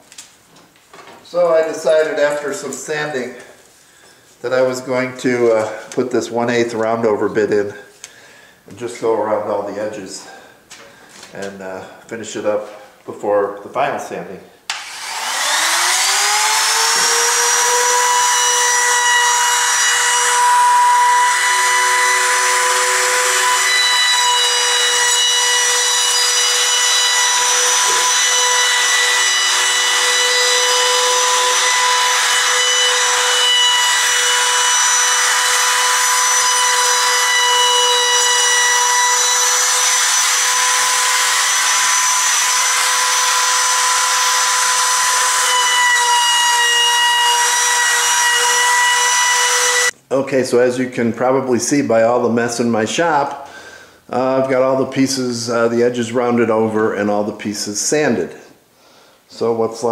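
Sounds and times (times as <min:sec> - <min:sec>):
router motor whine: 0:14.7 - 0:49.9
hiss of wood cutting: 0:14.7 - 0:50.0.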